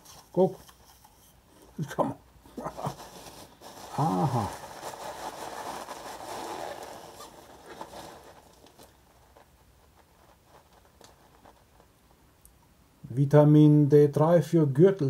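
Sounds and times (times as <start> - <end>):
packaging rustling: 2.6 - 12.2.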